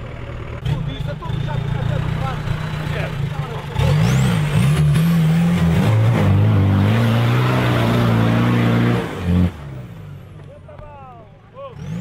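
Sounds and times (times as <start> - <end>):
engine revving hard: 0.6 - 9.9, 11.8 - 12.0.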